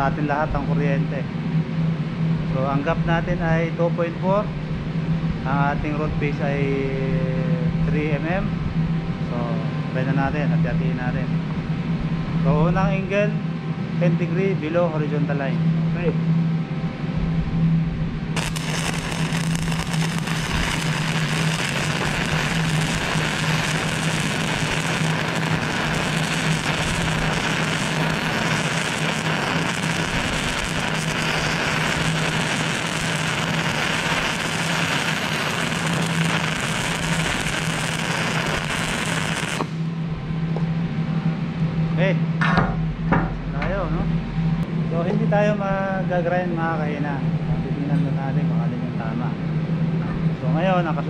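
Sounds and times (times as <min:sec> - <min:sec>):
steady low hum: 0:00.0 - 0:51.0
welding arc crackling: 0:18.3 - 0:40.0.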